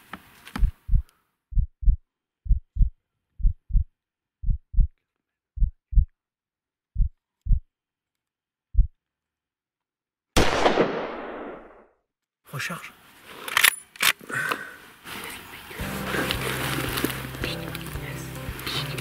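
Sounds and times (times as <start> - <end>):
heartbeat thumps: 0.6 - 5.0, 5.6 - 6.1, 7.0 - 7.7, 8.7 - 9.0
rifle shot: 10.4 - 11.9.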